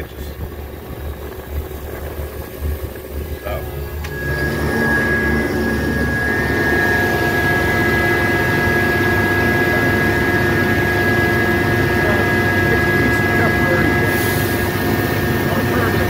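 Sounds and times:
engine running with high whine: 0.0s - 16.0s.

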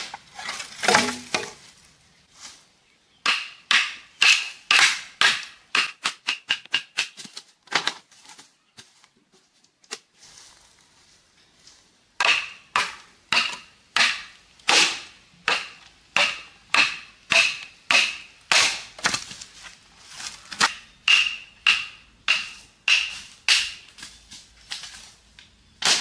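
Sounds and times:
machete chopping bamboo: 0.0s - 1.6s, 3.2s - 7.9s, 12.2s - 19.5s, 20.4s - 25.0s, 25.8s - 26.0s.

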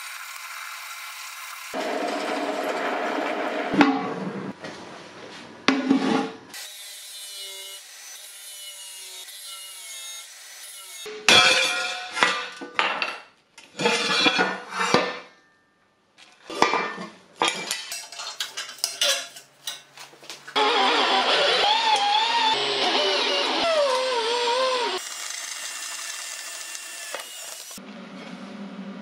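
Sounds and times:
die grinder grinding metal: 20.6s - 27.8s.

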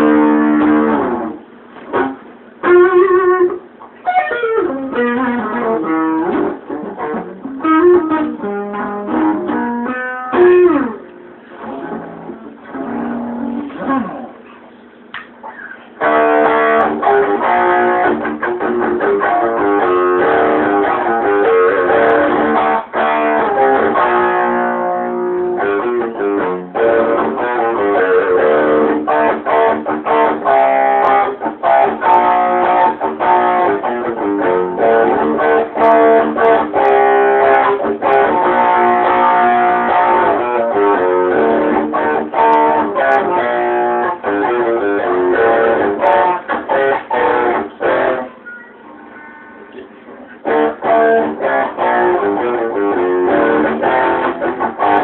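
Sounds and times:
electric guitar through amplifier: 0.0s - 55.0s.

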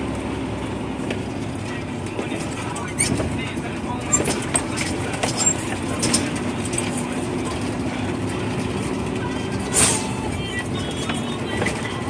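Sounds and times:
truck engine running: 0.0s - 12.0s
rattles and knocks: 2.1s - 9.7s.

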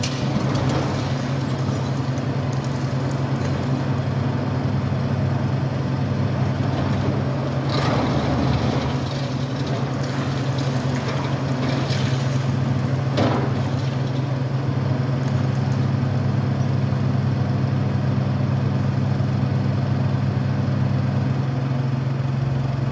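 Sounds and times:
concrete crunching and falling debris: 0.0s - 4.4s, 6.5s - 16.2s
diesel engine running: 0.0s - 22.9s.

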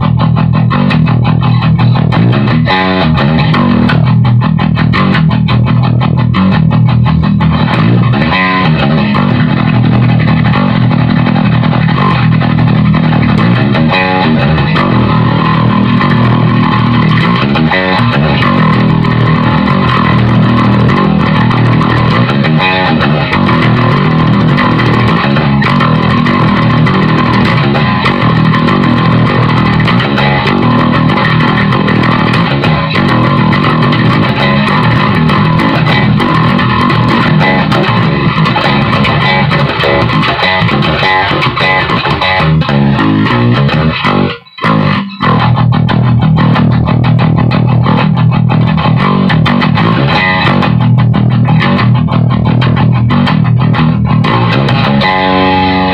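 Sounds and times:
overdriven electric bass guitar: 0.0s - 55.9s.

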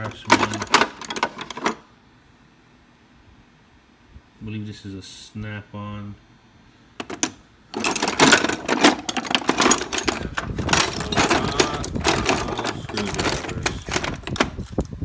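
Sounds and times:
screwdrivers clattering in drawer: 0.0s - 1.8s, 7.0s - 14.6s.

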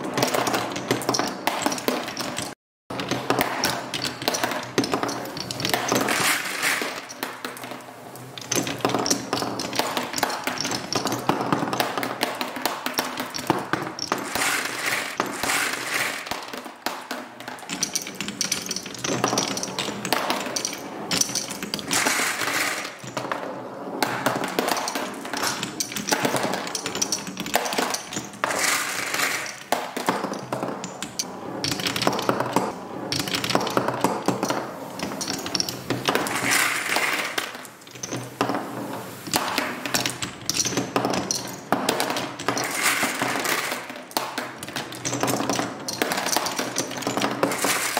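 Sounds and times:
marbles rolling on wooden tracks: 0.0s - 47.9s
marbles clicking and clinking: 0.2s - 16.7s, 17.4s - 23.4s, 24.0s - 47.9s.

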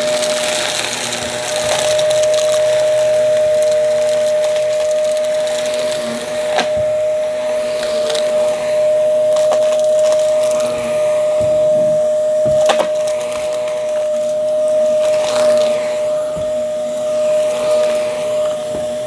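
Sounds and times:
vacuum cleaner whining: 0.0s - 19.0s.

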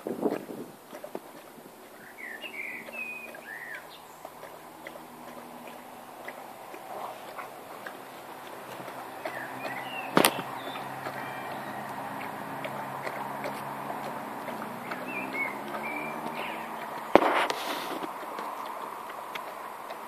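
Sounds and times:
outdoor background noise: 0.0s - 20.0s
bird chirps: 1.9s - 17.2s.

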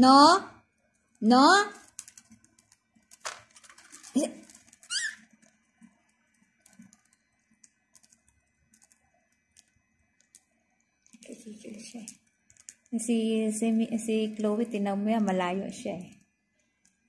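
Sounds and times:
birds pecking seed: 1.0s - 17.0s
budgie chirp: 4.9s - 5.2s.

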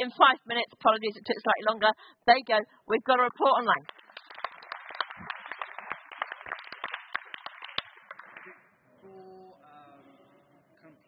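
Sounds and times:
audience applauding: 3.8s - 8.6s.

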